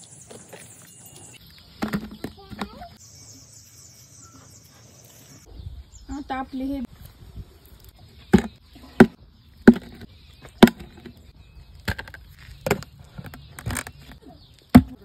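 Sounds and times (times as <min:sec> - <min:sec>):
plastic knocks and clacks: 0:08.3 - 0:11.2.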